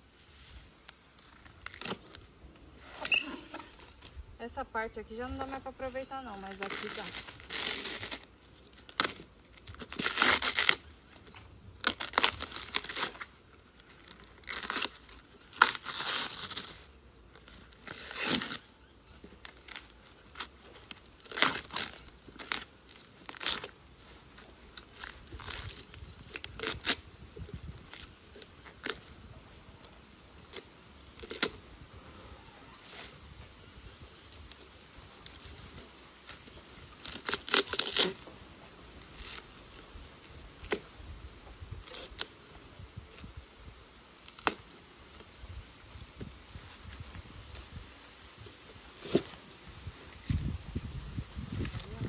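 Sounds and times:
husk tearing off bamboo shoots: 0.9 - 2.3, 6.4 - 16.9, 17.5 - 18.7, 19.3 - 29.1, 30.4 - 31.6, 34.4 - 38.4, 40.5 - 40.9, 41.8 - 43.4, 44.2 - 44.8, 48.7 - 52.0.

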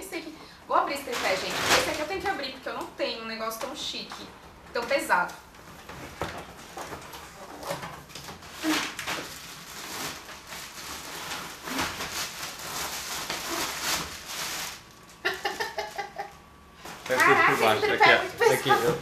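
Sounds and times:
plastic bag crinkling: 1.0 - 2.3, 6.4 - 16.3.

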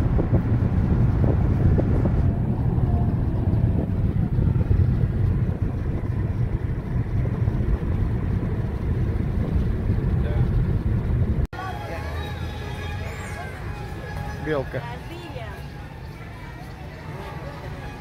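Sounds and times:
wind buffeting microphone: 0.0 - 11.5
car engine and road rumble: 0.0 - 18.0.

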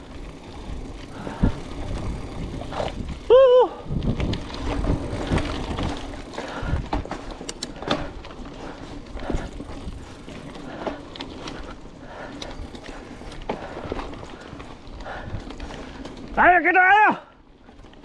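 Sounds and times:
bike tyres on dirt trail: 0.0 - 18.0
bike knocks and rattles: 3.9 - 11.7.

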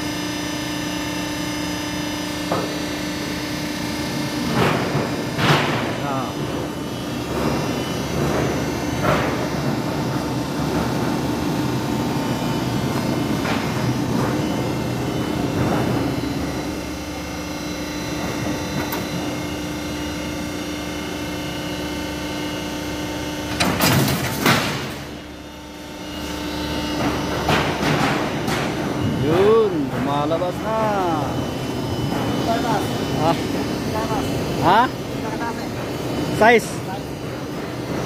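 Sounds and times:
machine humming and whining: 0.0 - 38.0
loud noisy clatters: 4.2 - 16.8, 23.5 - 25.2.

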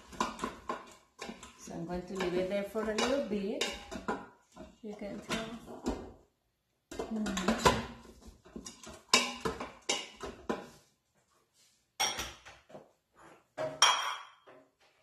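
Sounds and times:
vegetables sauteing: 0.0 - 6.0
wooden spoon scraping a pot: 0.0 - 6.2, 6.9 - 10.9.

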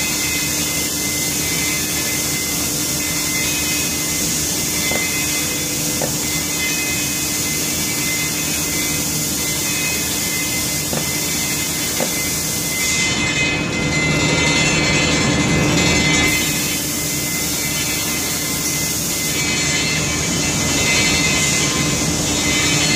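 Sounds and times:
spray equipment whining: 0.0 - 13.7.

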